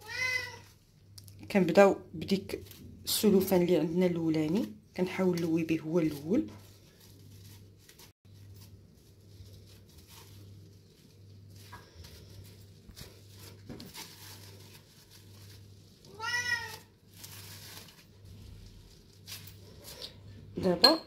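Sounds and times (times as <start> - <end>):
cat meowing: 0.0 - 0.7, 16.1 - 16.9
low steady hum: 0.0 - 16.2, 16.8 - 21.0
faint rustles: 6.1 - 20.4.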